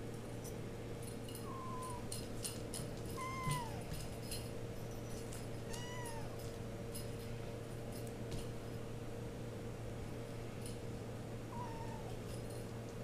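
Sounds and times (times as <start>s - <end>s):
cat meowing: 1.4s - 2.1s, 3.2s - 4.0s, 5.7s - 6.4s, 11.5s - 12.2s.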